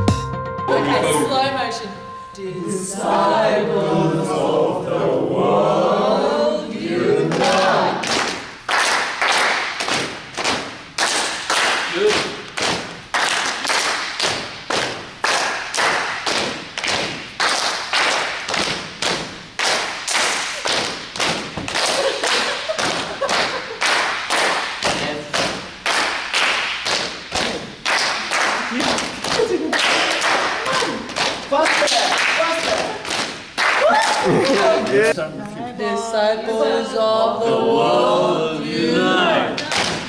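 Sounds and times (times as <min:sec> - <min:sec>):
rhythmic hand claps and thigh slaps: 0:07.2 - 0:35.0, 0:39.6 - 0:40.0
voices: 0:33.8 - 0:40.0.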